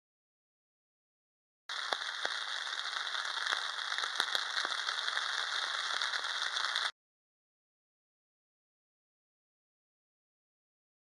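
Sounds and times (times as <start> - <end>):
heavy rain falling: 1.7 - 6.9.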